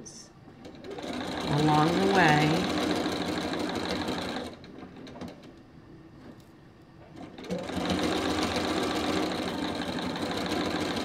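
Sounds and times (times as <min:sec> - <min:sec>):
sewing machine stitching: 0:00.6 - 0:05.5, 0:07.1 - 0:11.0.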